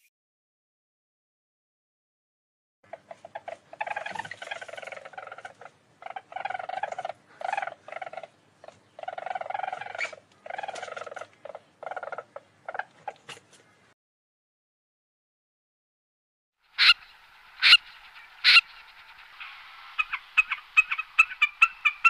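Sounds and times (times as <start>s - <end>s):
weasel trilling chatter: 2.9s - 13.3s, 16.8s - 22.0s.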